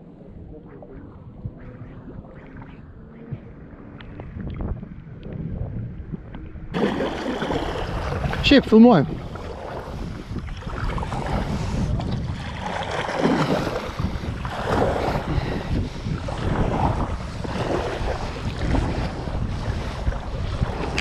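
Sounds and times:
wind buffeting microphone: 0:00.0 - 0:21.0
paddle splashing water: 0:06.7 - 0:21.0.

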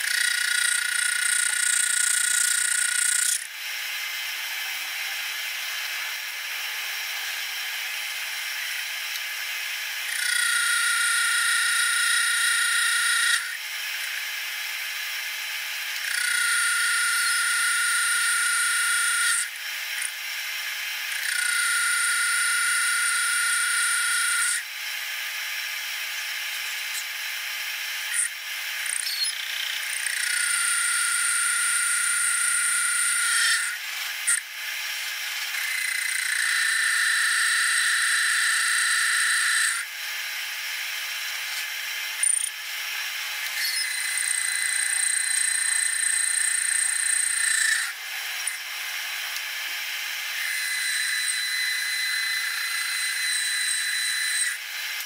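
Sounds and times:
lathe cutting whine: 0:00.0 - 0:55.0
lathe running: 0:29.8 - 0:39.8.

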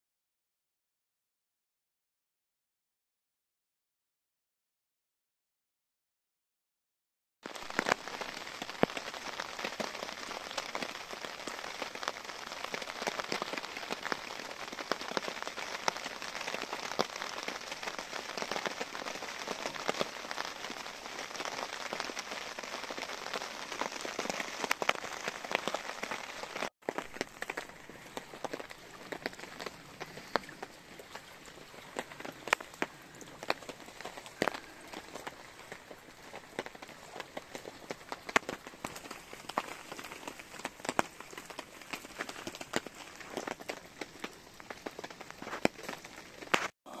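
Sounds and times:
raindrops hitting a tarp: 0:07.4 - 0:47.0
heavy rain falling: 0:07.5 - 0:47.0.

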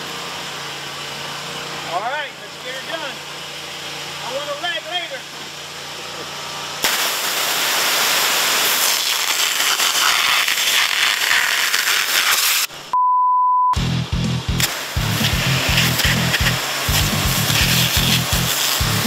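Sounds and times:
pressure washer spraying: 0:06.8 - 0:12.8, 0:14.5 - 0:19.0
short steady beep: 0:12.9 - 0:13.8
music with a steady beat: 0:13.8 - 0:19.0.

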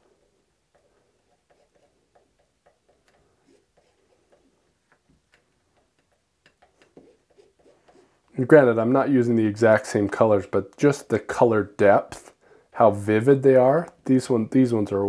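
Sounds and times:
palette knife scraping paint: 0:00.0 - 0:08.2.

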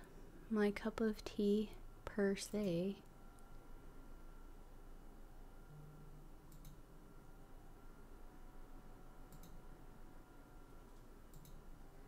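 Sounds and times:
low room hiss: 0:00.0 - 0:12.0
computer mouse clicks: 0:06.5 - 0:06.8, 0:09.3 - 0:09.6, 0:10.9 - 0:11.6.

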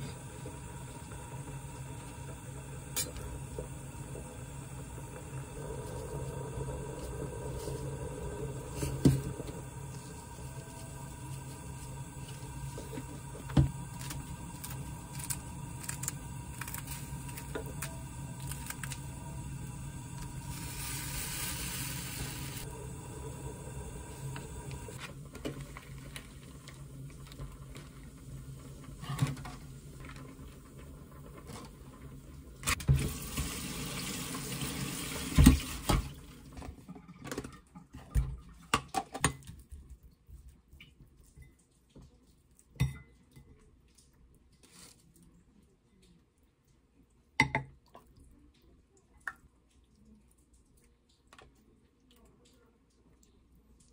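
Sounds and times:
steady hum: 0:00.0 - 0:25.4
water running from tap: 0:00.0 - 0:36.7.

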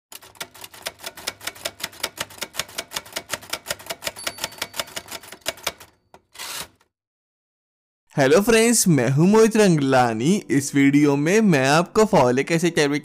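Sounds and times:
typewriter key clicks: 0:00.2 - 0:06.3.

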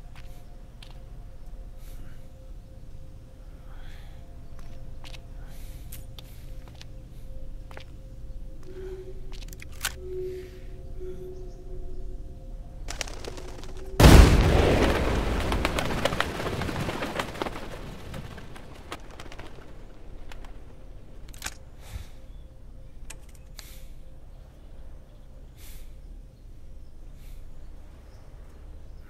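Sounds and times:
pigeons wings flapping: 0:12.9 - 0:21.5.

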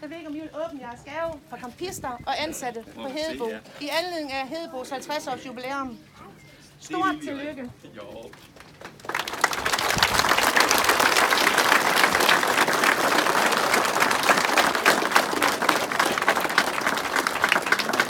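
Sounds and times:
crowd applauding: 0:08.2 - 0:18.0.

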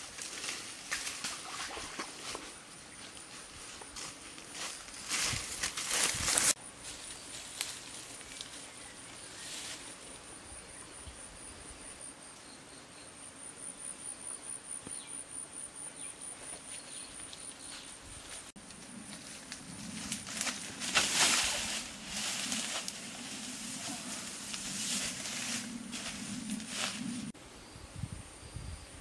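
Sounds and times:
faint rustles: 0:17.7 - 0:27.3.

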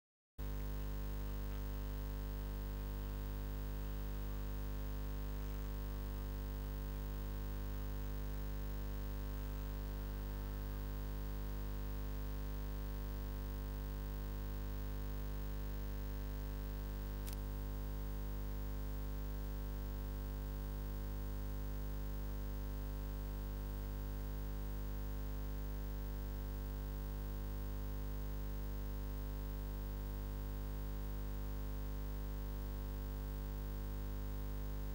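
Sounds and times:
electrical mains hum: 0:00.4 - 0:34.9.

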